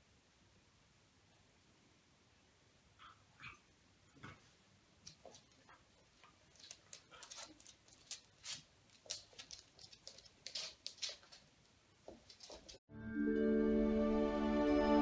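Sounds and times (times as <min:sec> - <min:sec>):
paws clicking on wooden floor: 0:04.4 - 0:12.8.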